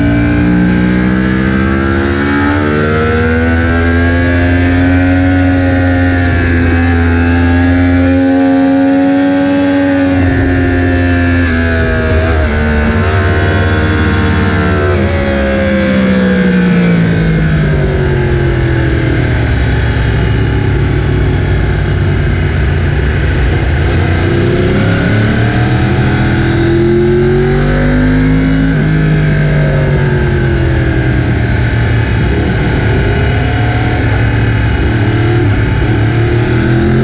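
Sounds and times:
motorcycle engine revving: 0:00.0 - 0:37.0
wind rush: 0:29.5 - 0:37.0.

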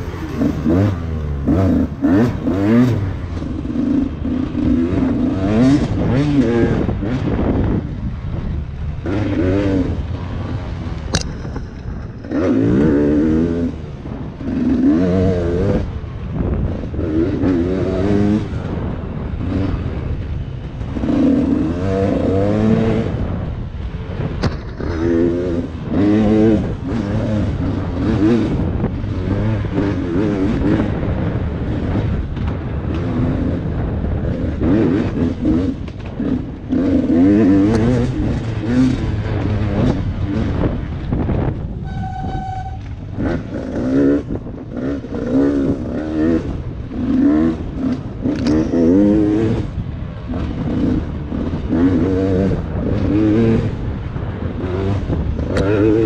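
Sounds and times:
dirt bike engine revving: 0:00.0 - 0:56.0
sharp click: 0:11.1 - 0:11.9.

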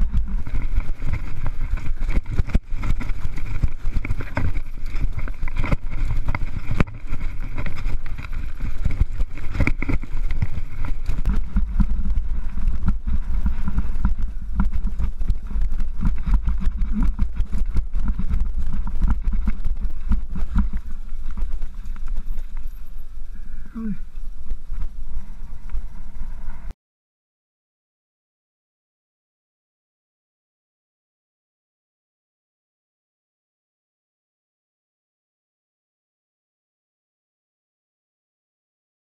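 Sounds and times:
bike rattling over stones: 0:00.0 - 0:26.7
wind rumbling on microphone: 0:00.0 - 0:26.8.

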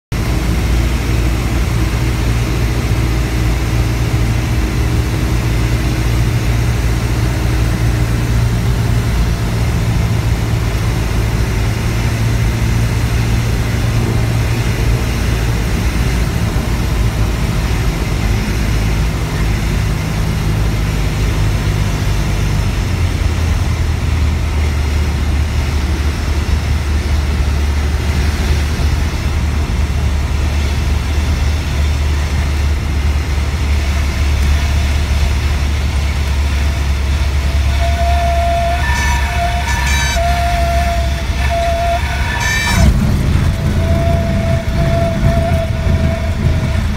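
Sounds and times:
airplane engine and propeller droning: 0:00.1 - 0:46.9
wind and airframe noise: 0:00.1 - 0:46.9.

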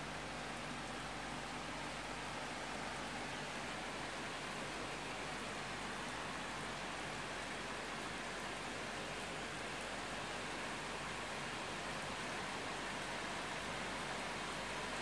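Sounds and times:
steady rain falling: 0:00.0 - 0:15.0.

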